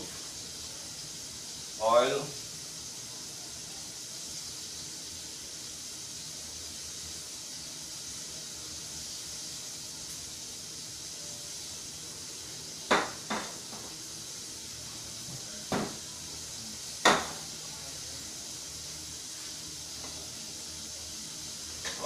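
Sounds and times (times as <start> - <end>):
steady high hiss: 0.0 - 22.0.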